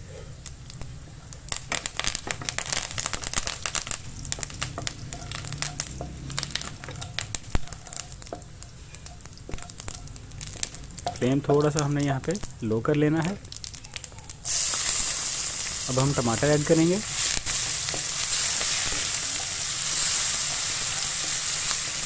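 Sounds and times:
spices crackling in hot oil: 0:00.3 - 0:22.0
wooden spatula stirring: 0:04.4 - 0:12.2.

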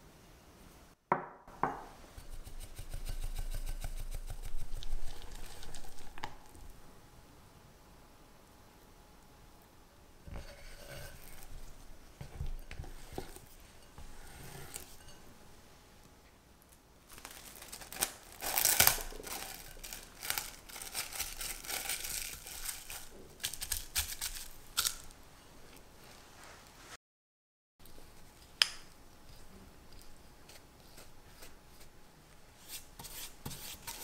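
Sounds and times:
cling wrap crinkling: 0:04.6 - 0:06.6, 0:17.1 - 0:25.1
spatula scraping glass bowl: 0:10.3 - 0:15.2.

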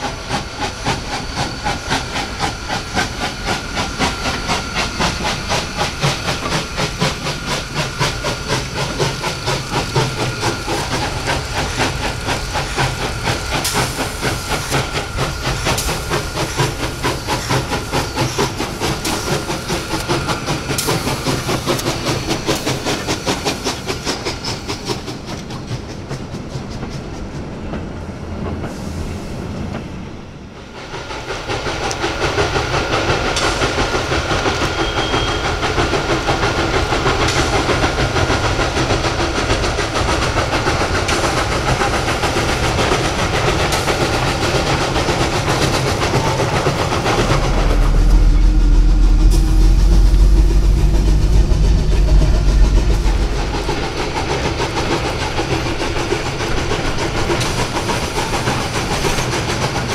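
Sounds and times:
steam locomotive exhaust beats: 0:00.0 - 0:59.9
deep low rumble: 0:47.0 - 0:54.4.

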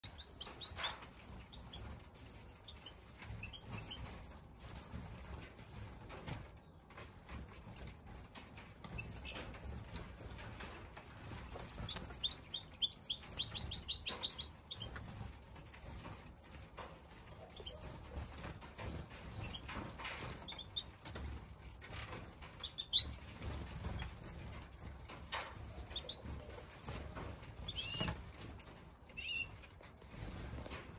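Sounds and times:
rapid bird twittering: 0:00.0 - 0:05.9, 0:11.4 - 0:16.5, 0:17.5 - 0:19.8, 0:22.6 - 0:24.9, 0:27.6 - 0:29.6
wings fluttering: 0:00.0 - 0:30.9.

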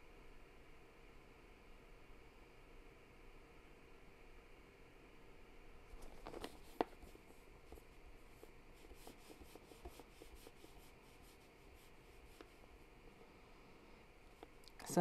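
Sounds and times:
brush scratching on wet paper: 0:06.0 - 0:12.8.

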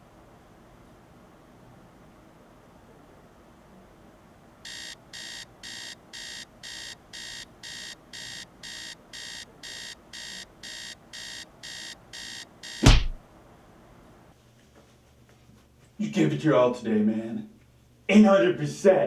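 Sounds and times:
alarm clock beeping: 0:04.7 - 0:13.1.

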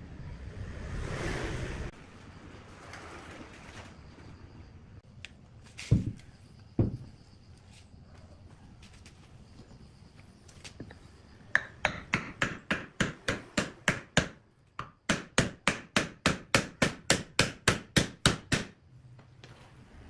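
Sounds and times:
hammer knocking wooden block: 0:11.5 - 0:18.8.

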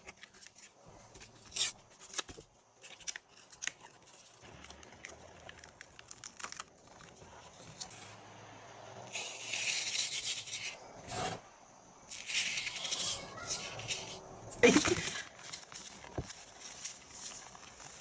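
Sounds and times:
paper peeling crackles: 0:00.0 - 0:08.1
sand sprinkling hiss: 0:12.0 - 0:18.0.

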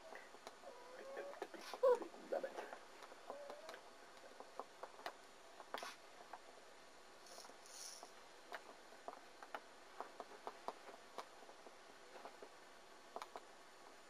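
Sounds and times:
small animals tapping and clicking: 0:02.6 - 0:06.5, 0:07.3 - 0:13.5
soft hissing: 0:05.5 - 0:08.4.

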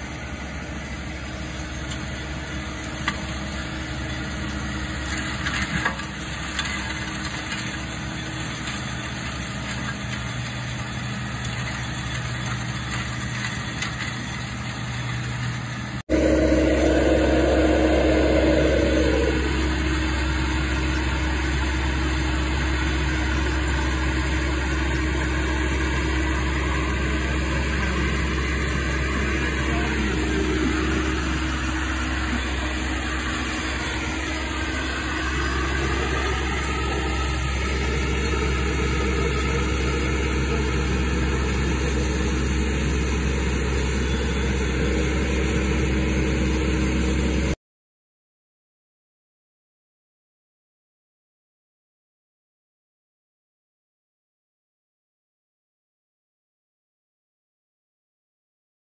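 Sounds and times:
diesel engine running: 0:00.0 - 0:47.6
rushing noise: 0:16.1 - 0:20.8, 0:25.3 - 0:47.5.

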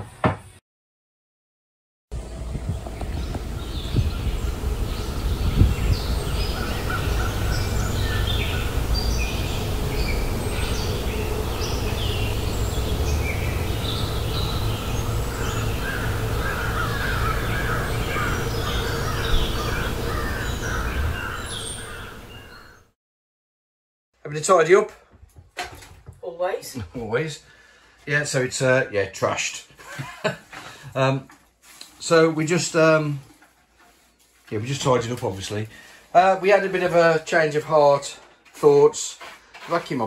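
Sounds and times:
steady low rumble: 0:02.1 - 0:21.2
birds chirping and calling: 0:02.2 - 0:22.9.

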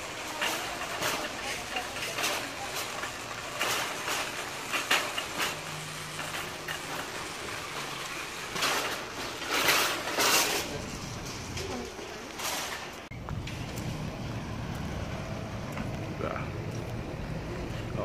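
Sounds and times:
shopping cart rattling: 0:00.0 - 0:13.8
shopping carts clattering: 0:00.0 - 0:16.4.

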